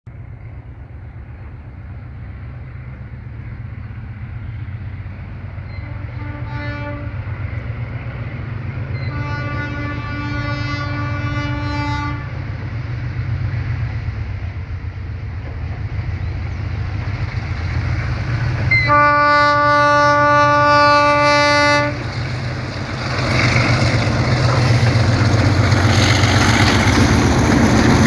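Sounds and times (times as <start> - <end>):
diesel locomotive engines rumbling: 0.1 - 28.0
train horn blasts: 5.7 - 7.3, 8.9 - 12.4, 18.7 - 22.2.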